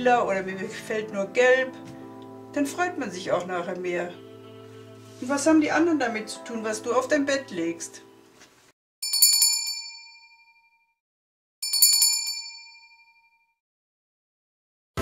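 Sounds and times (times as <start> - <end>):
small bell ringing: 9.0 - 10.9, 11.6 - 13.5.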